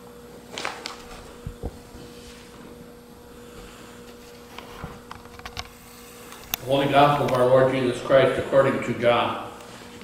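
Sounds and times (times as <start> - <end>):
low room hum: 0.0 - 10.0
soft low thuds: 1.3 - 3.6.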